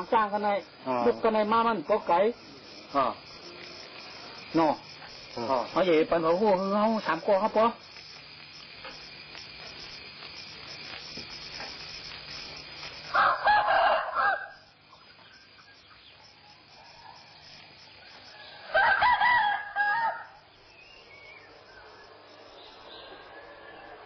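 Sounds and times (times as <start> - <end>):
faint steady hiss: 0.0 - 24.0
rooster crowing: 13.0 - 14.8, 16.4 - 20.5.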